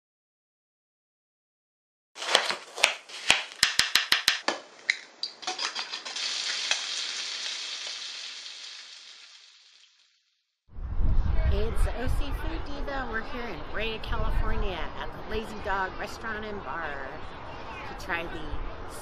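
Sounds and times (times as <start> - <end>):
bacon sizzling in frying pan: 5.4 - 10.2.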